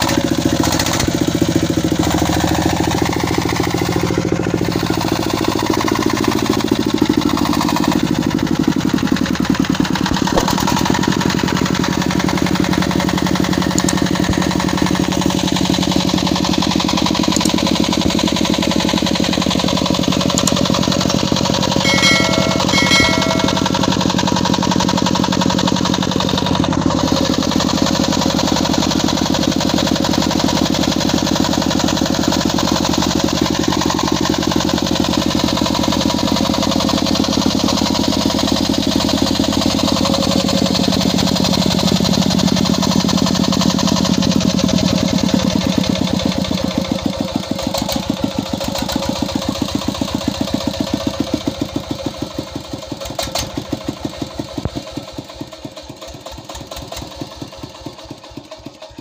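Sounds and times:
diesel engine running: 0:00.0 - 0:59.0.

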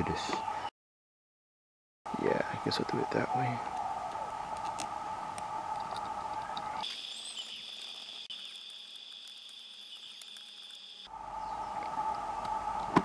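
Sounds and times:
high insect-like chorus: 0:05.7 - 0:11.7.

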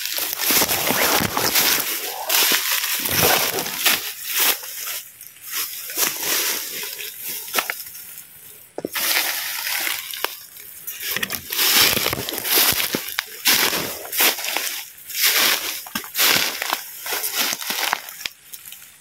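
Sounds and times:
leaves rustling and crunching: 0:00.0 - 0:19.0.

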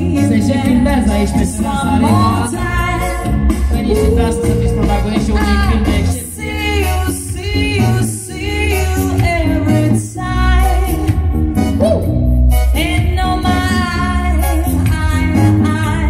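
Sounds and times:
music with strong bass: 0:00.0 - 0:16.0
woman singing into microphone: 0:01.6 - 0:11.2, 0:12.7 - 0:16.0.

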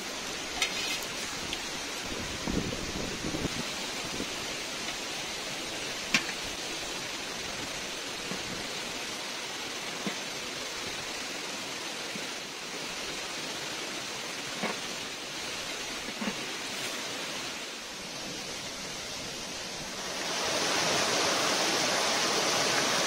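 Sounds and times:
stream running over rocks: 0:00.0 - 0:23.0.

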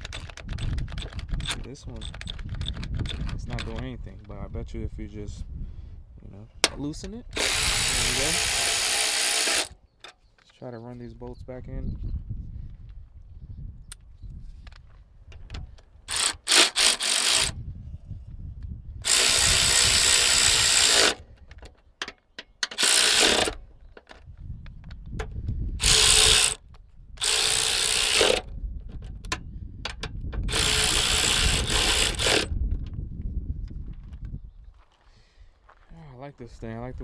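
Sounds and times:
cordless ratchet driving bolts: 0:00.0 - 0:03.9, 0:06.6 - 0:09.8, 0:15.4 - 0:17.6, 0:19.0 - 0:21.2, 0:22.0 - 0:24.2, 0:25.8 - 0:26.6, 0:27.2 - 0:28.5, 0:29.3 - 0:32.5.

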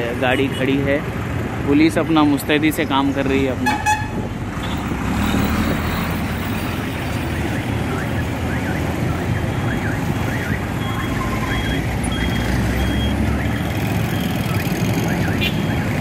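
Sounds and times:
traffic engines rumbling: 0:00.0 - 0:16.0
electronic alarm chirping: 0:07.3 - 0:16.0.

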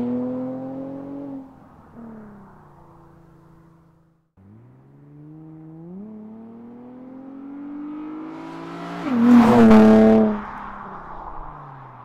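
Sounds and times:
car accelerating past: 0:04.4 - 0:12.0.

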